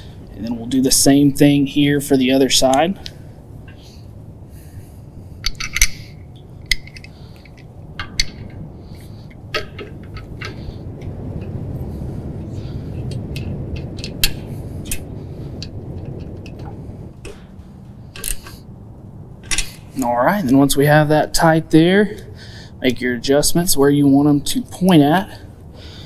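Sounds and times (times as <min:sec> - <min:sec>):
low steady rumble: 0:00.0 - 0:26.0
metallic clicks of bolts and socket: 0:05.4 - 0:08.6, 0:18.2 - 0:18.5.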